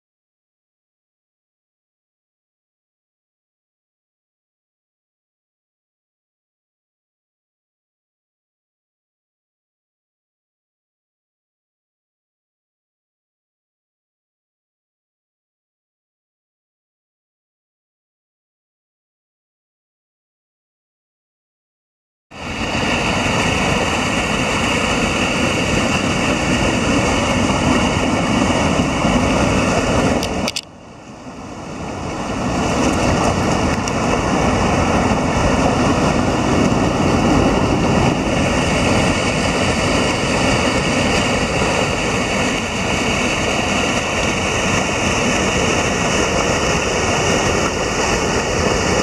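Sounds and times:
water rushing in mountain stream: 22.4 - 49.0.

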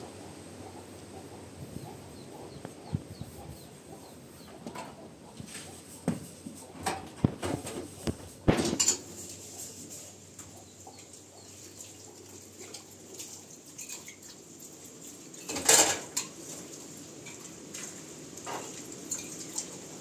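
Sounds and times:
objects knocking and clattering: 6.8 - 9.1, 15.5 - 16.4.

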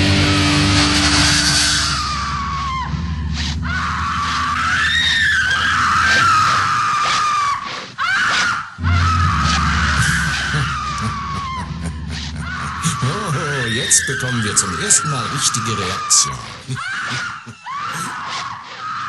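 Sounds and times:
heavy metal music: 0.0 - 6.5, 8.8 - 16.3
high wavering scream: 0.0 - 19.0.

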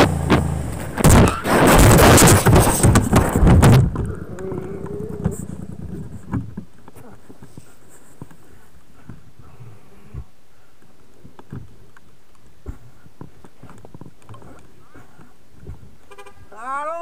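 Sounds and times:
motorcycle crashing: 0.0 - 6.6
faint ticks and clicks: 3.9 - 16.1.

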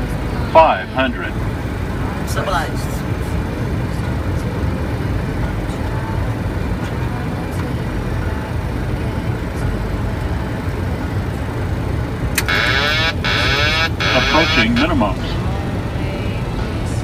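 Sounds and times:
cockpit engine and airflow rumble: 0.0 - 17.0.

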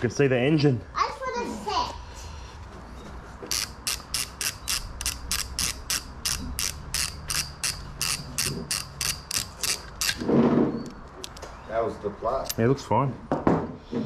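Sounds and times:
socket ratchet wrench clicking: 3.4 - 10.2, 11.2 - 11.4.

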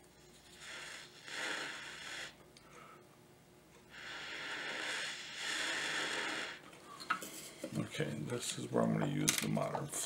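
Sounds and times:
breath blown through blowpipe: 0.5 - 2.4, 3.9 - 6.6.

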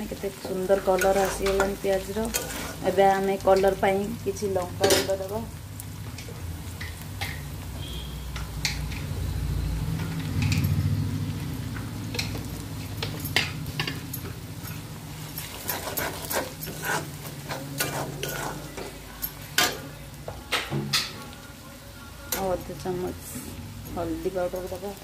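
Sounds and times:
food sizzling in hot oil: 0.0 - 25.0
metal spatula scraping pan: 0.4 - 3.8, 12.1 - 19.9.

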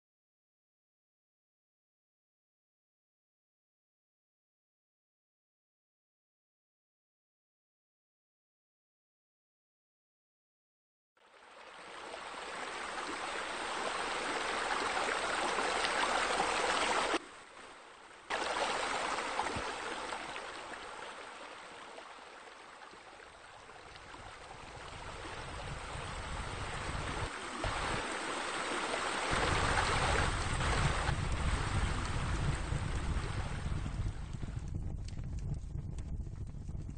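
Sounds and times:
waterfall rushing: 11.7 - 25.1, 26.0 - 31.1
low rumble: 30.6 - 36.9.

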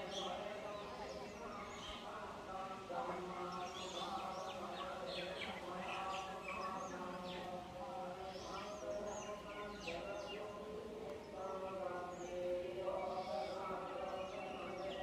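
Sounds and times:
small birds chirping: 0.0 - 15.0
voices chanting: 0.0 - 15.0.

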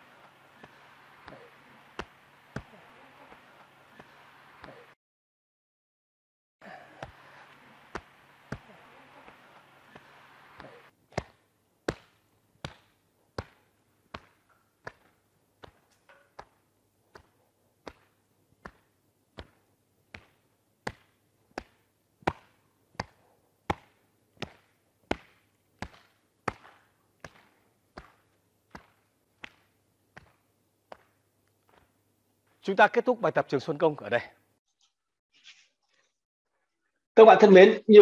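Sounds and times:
palms slapping the body: 0.0 - 4.9, 6.9 - 32.6.

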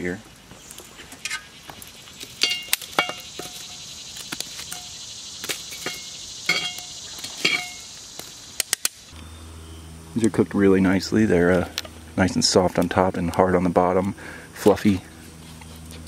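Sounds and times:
crickets chirring: 0.0 - 16.0
metal tongs clinking on pot lid: 5.7 - 7.8.

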